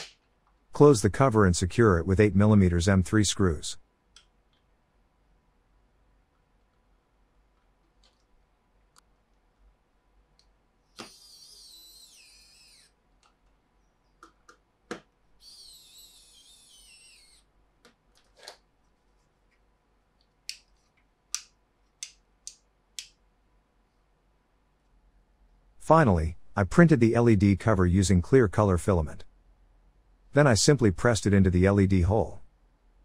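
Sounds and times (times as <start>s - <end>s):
electric screwdriver whirring: 11.0s - 12.9s, 15.4s - 17.4s.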